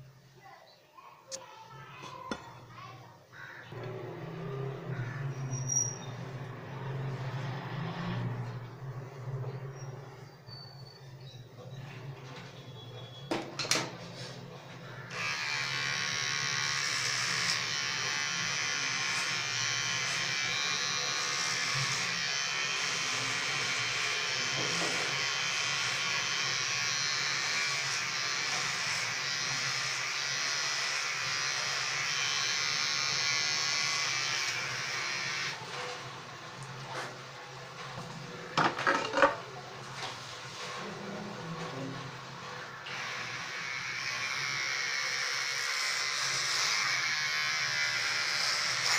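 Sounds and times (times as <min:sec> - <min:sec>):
electric hair clipper buzzing: 0:15.0 - 0:35.7, 0:42.6 - 0:48.9.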